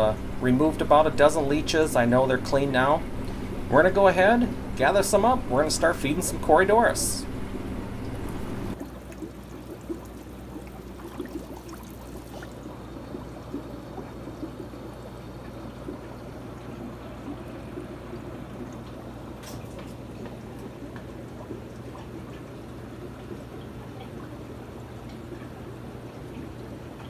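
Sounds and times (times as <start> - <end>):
steady low hum: 0.0 - 27.0
water trickling and bubbling: 7.5 - 27.0.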